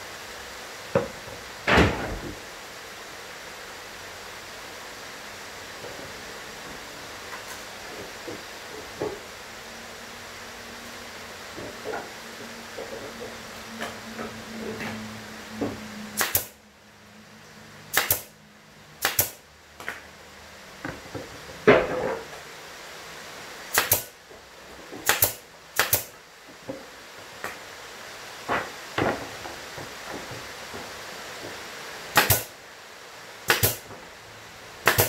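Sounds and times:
brad nailer shots: 16.1s - 16.6s, 17.9s - 18.4s, 19.0s - 19.4s, 23.7s - 24.2s, 25.0s - 26.2s, 32.1s - 32.6s, 33.4s - 33.9s
knocks of wooden panels: 28.4s - 31.6s.

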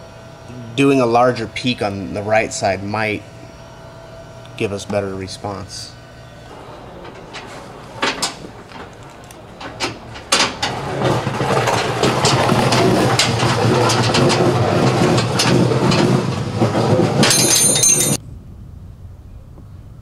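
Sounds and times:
loud steady engine drone: 0.0s - 20.0s
metal clinks: 17.2s - 18.2s.

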